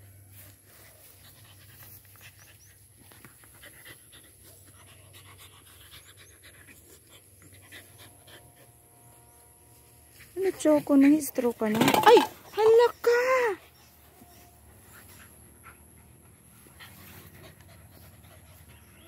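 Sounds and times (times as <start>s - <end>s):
rustling in grass: 0.0s - 3.8s, 8.6s - 12.4s, 16.5s - 18.0s
dog panting: 0.8s - 9.0s, 13.5s - 19.0s.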